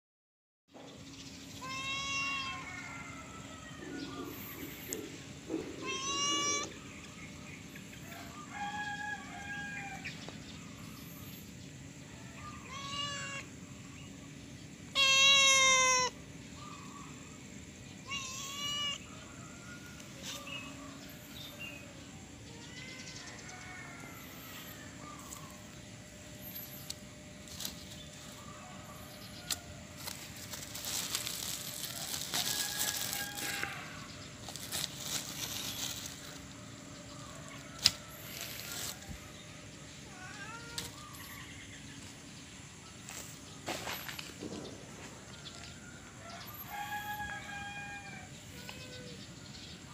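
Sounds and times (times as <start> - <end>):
cat meowing: 1.6 - 2.7, 5.8 - 6.8, 12.7 - 13.5, 14.9 - 16.1, 18.1 - 19.0, 40.0 - 41.0.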